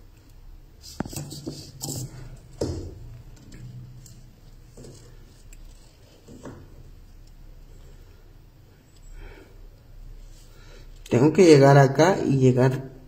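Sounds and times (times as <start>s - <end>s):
wire scraping and ticking: 0.8s - 2.3s.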